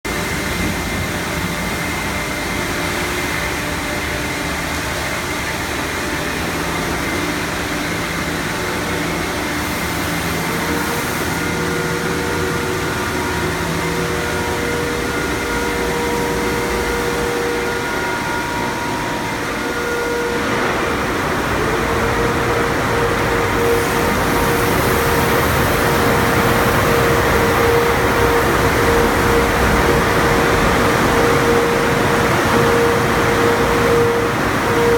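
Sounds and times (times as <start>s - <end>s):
car wash machinery humming: 0.0s - 34.9s
water spray and spinning washers: 20.5s - 34.9s.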